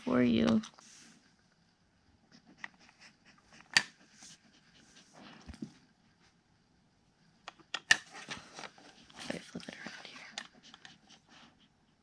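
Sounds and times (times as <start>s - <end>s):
dog sniffing and breathing: 2.3s - 5.8s, 8.1s - 12.0s
plastic puzzle clicks and knocks: 7.5s - 8.0s.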